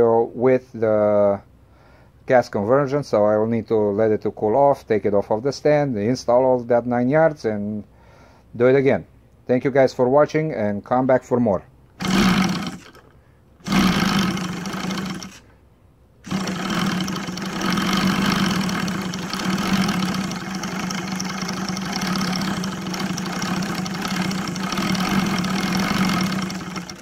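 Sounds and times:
radial engine starting and running: 12.0 - 15.5, 16.2 - 27.0.

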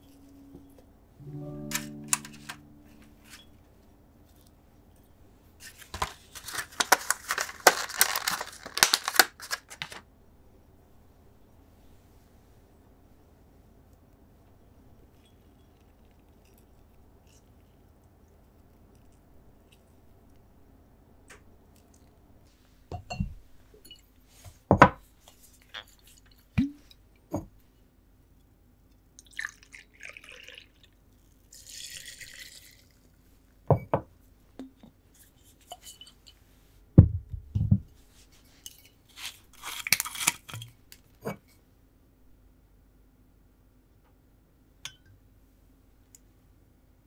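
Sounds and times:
liquid pouring: 29.2 - 33.2.

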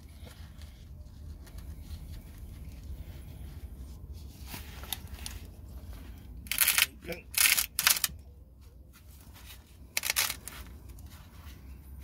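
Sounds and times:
faint handling noises: 0.0 - 12.0.

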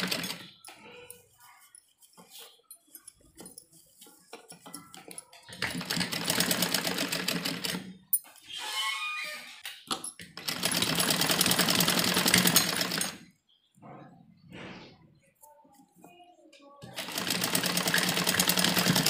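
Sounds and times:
sewing machine stitching: 0.0 - 0.6, 5.5 - 7.9, 10.4 - 13.2, 16.9 - 19.0.

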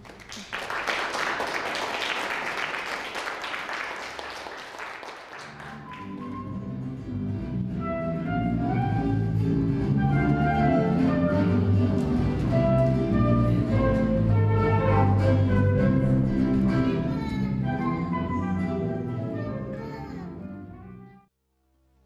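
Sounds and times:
audience applause: 0.0 - 6.6
live guitar music: 5.7 - 20.8.

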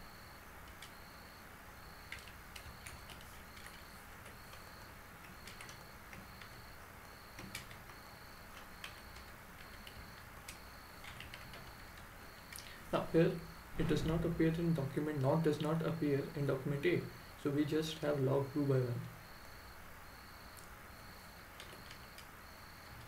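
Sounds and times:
computer keyboard typing: 0.6 - 1.1, 2.0 - 12.7, 21.6 - 22.3.

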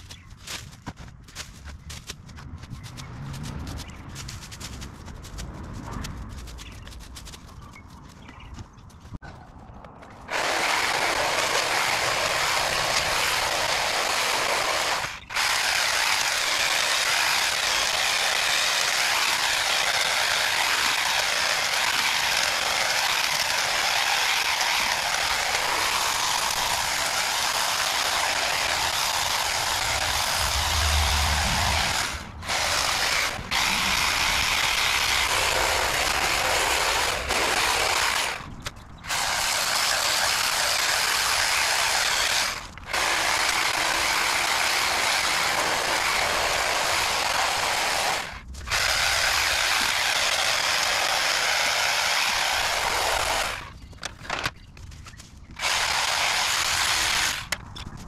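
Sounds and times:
leaves rustling: 0.0 - 8.3
hedge trimmer buzzing: 10.3 - 38.4, 39.1 - 53.7, 55.6 - 57.6.

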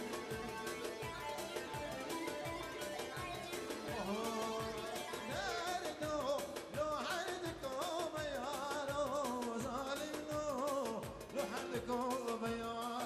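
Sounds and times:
wavering dance melody: 0.0 - 6.6
steady drum beat: 0.0 - 13.0.

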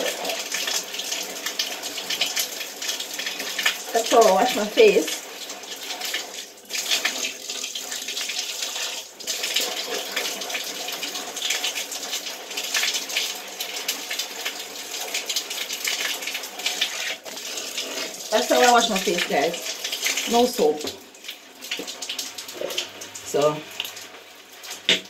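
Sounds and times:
shower water running: 0.0 - 25.0.

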